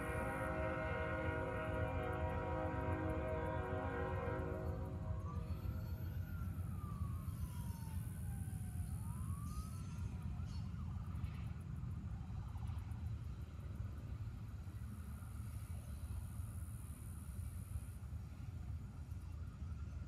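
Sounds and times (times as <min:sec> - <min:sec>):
freight train rumbling past: 0:00.0 - 0:20.0
siren wailing: 0:04.4 - 0:10.8.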